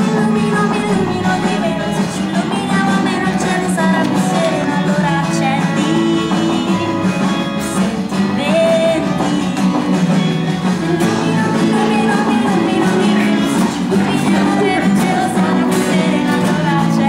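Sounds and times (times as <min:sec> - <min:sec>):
woman singing: 0:00.0 - 0:09.8, 0:10.6 - 0:17.0
acoustic guitar: 0:00.0 - 0:17.0.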